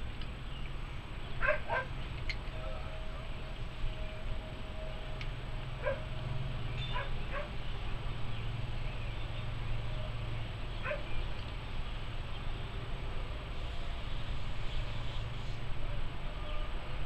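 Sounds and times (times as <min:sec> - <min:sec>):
dog barking: 0:01.4 - 0:01.9, 0:05.8 - 0:06.0, 0:06.9 - 0:07.5, 0:10.8 - 0:11.0.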